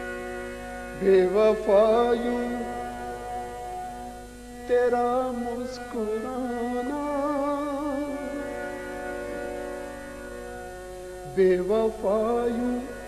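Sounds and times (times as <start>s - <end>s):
man singing held note: 4.7s - 8.4s.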